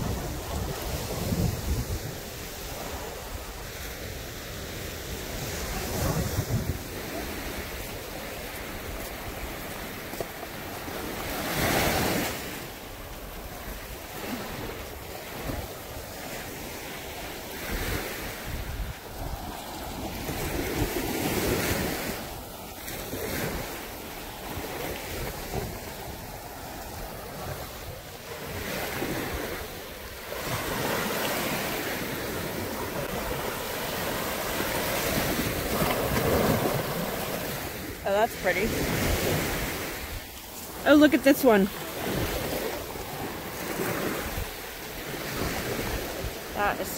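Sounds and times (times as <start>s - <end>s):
wind buffeting microphone: 0.0s - 10.2s, 11.0s - 23.8s
waves washing up sandy shore: 0.0s - 46.9s.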